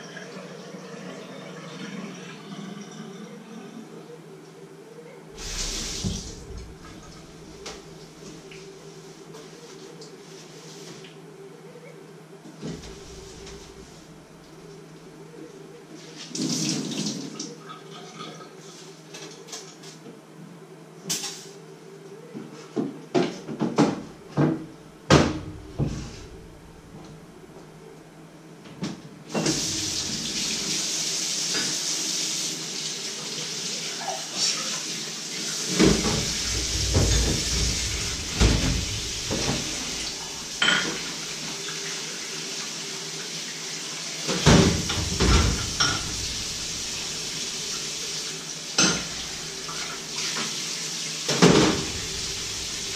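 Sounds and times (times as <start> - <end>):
water running into sink: 5.4 - 8.0, 29.4 - 52.9
dishes and pots clattering: 35.7 - 41.2, 44.4 - 46.2, 48.8 - 50.0.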